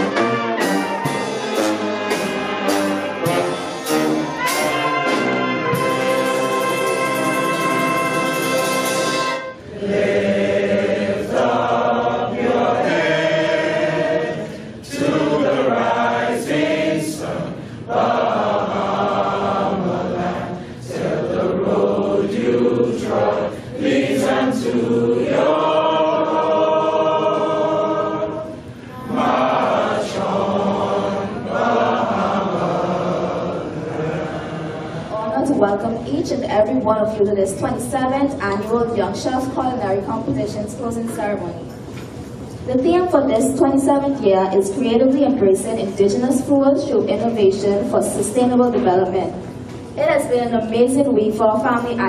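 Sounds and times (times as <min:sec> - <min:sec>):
brass and saxophones holding chord: 0:00.0 - 0:34.3
crowd singing in unison: 0:00.0 - 0:35.6.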